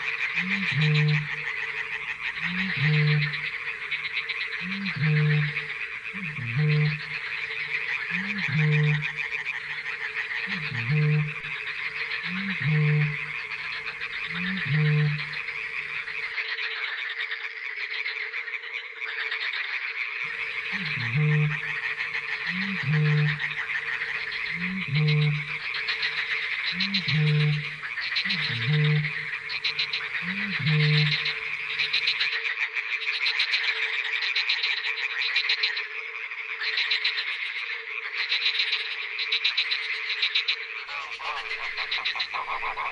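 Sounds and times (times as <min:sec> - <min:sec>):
frogs calling: 0:00.0 - 0:42.9.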